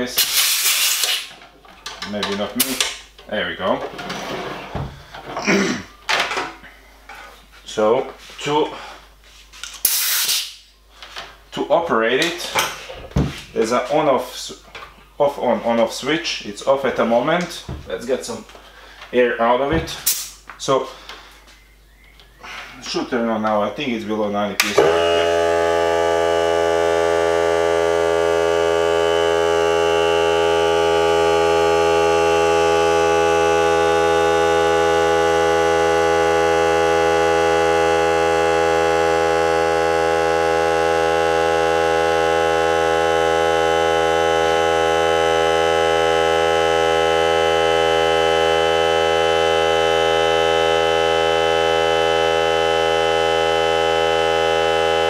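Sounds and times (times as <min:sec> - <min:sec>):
air compressor motor running: 0:24.6 - 0:55.0.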